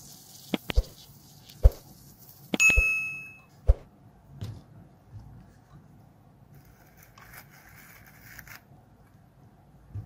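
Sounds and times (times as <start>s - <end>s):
bell ding: 2.6s - 3.5s.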